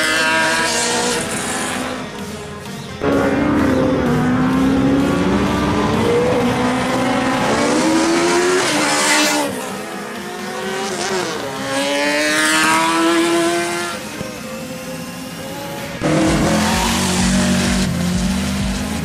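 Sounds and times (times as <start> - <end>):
race cars accelerating past: 0.0 - 19.0.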